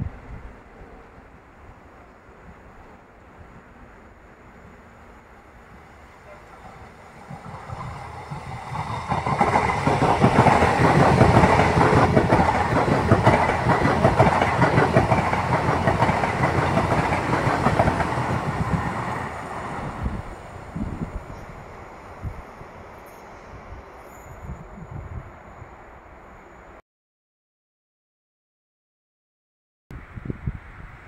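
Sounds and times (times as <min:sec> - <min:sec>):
train passing at speed: 0:00.0 - 0:26.8
wheels clattering on rails: 0:06.3 - 0:19.0.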